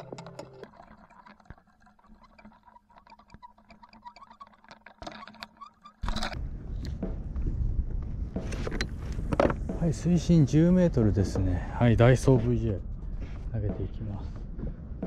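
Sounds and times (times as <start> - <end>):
low hum: 6.0 - 15.0.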